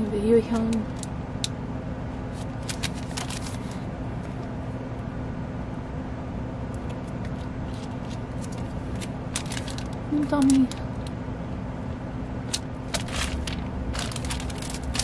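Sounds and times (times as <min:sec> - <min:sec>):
steady low hum: 0:00.0 - 0:15.0
plastic sleeves crinkling: 0:02.3 - 0:03.9, 0:06.8 - 0:11.1, 0:12.5 - 0:15.0.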